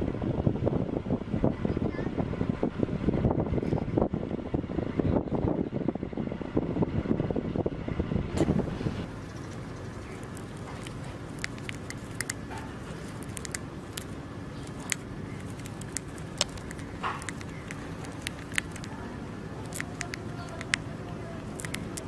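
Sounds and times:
low background hum: 0:00.0 - 0:22.0
hamster nibbling food: 0:10.0 - 0:22.0.

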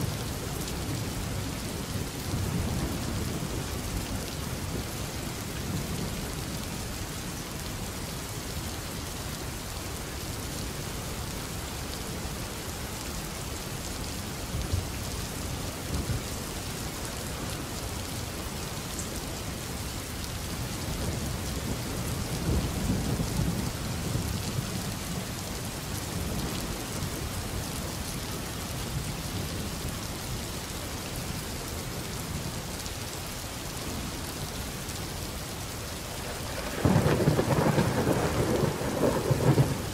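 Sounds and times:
steady rain: 0:00.0 - 0:39.9
thunder rumbling: 0:36.3 - 0:39.9.

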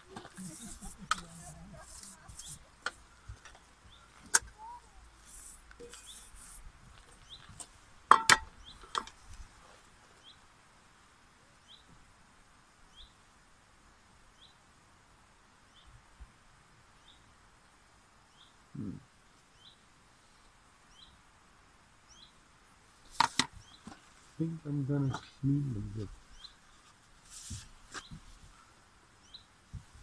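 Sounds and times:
bird chirping: 0:07.2 - 0:07.6, 0:08.5 - 0:09.0, 0:11.6 - 0:11.9, 0:12.9 - 0:13.2, 0:17.0 - 0:17.3, 0:18.3 - 0:18.9, 0:19.5 - 0:19.8, 0:20.9 - 0:21.2, 0:22.1 - 0:22.4, 0:23.5 - 0:23.9, 0:25.0 - 0:26.8, 0:29.2 - 0:29.5.

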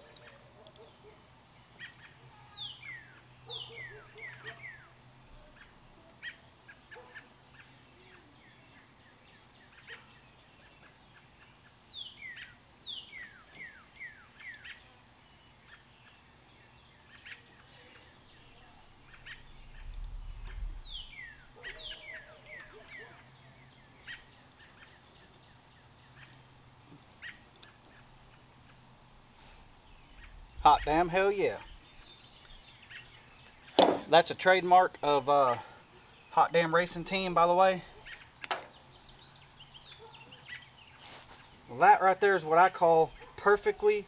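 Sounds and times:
birds chirping: 0:00.0 - 0:44.0
low rumble: 0:19.3 - 0:21.5.

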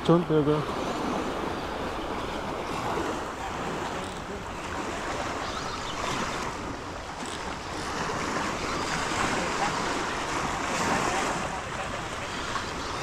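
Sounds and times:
water washing: 0:00.0 - 0:13.0.

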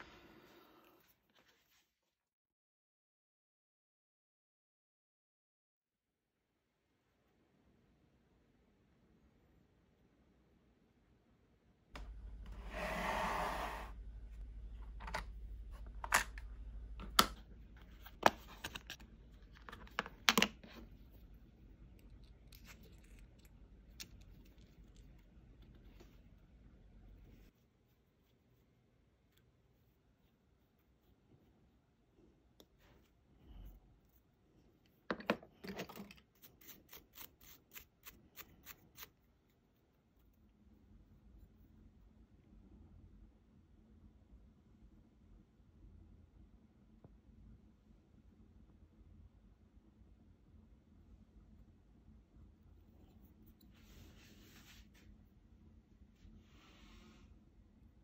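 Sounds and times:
toothbrush scrubbing plastic: 0:35.7 - 0:40.5.

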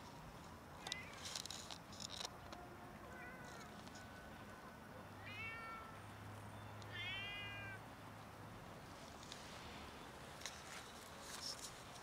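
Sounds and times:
cats meowing: 0:05.2 - 0:06.0, 0:06.9 - 0:07.8.

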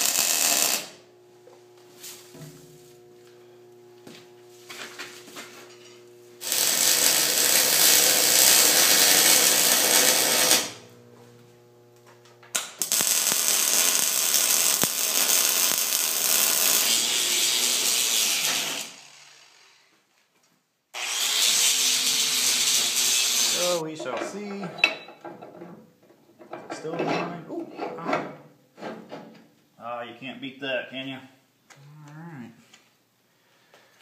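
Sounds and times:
electric arc welding: 0:00.0 - 0:19.9, 0:21.0 - 0:23.8.

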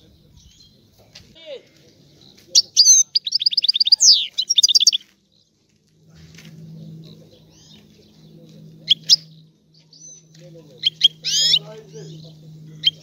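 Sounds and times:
bird twittering song: 0:00.0 - 0:01.2, 0:01.8 - 0:13.0
faint bird chirps: 0:02.2 - 0:05.6.

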